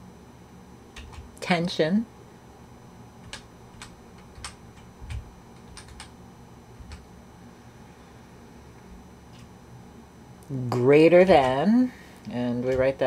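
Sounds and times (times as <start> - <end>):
keyboard keys clicking: 1.0 - 1.3, 3.2 - 6.1, 6.8 - 7.0.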